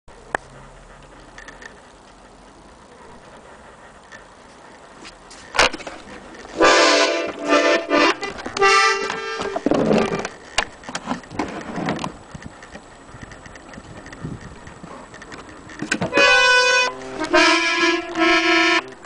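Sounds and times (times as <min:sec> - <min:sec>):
accordion chords: 0:06.5 - 0:10.4, 0:16.0 - 0:19.0.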